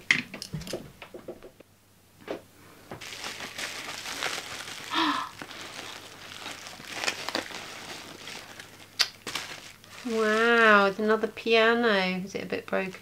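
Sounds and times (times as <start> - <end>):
bubble wrap rustling and crinkling: 3.0 - 11.0.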